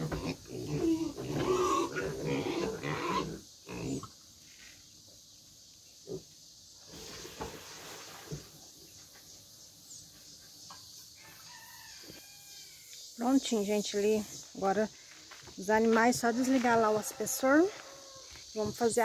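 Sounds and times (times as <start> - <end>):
pigs grunting and squealing: 0.0 - 4.1.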